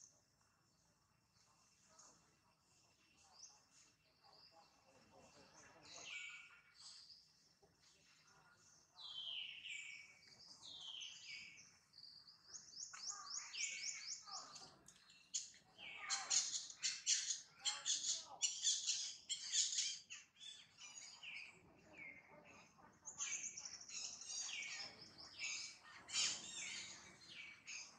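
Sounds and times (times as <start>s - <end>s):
birds whistling and chirping: 9.0s - 11.7s, 12.4s - 22.2s, 23.1s - 27.9s.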